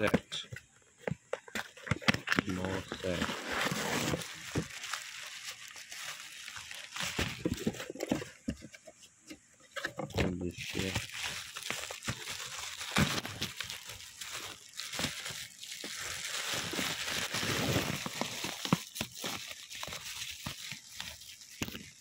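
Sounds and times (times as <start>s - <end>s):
plastic packaging crinkling: 1.5s - 8.5s, 10.1s - 22.0s.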